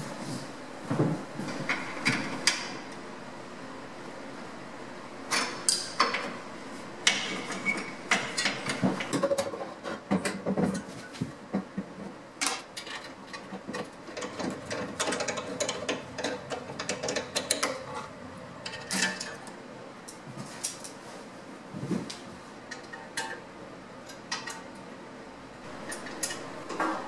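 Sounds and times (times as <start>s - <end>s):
hand tools clicking and clanking: 7.0s - 11.8s, 12.4s - 21.0s, 25.7s - 27.0s.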